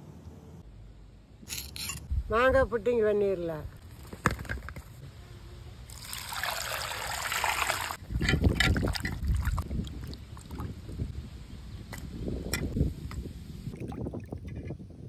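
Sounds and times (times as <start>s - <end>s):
water pouring into a pot: 5.9s - 8.0s.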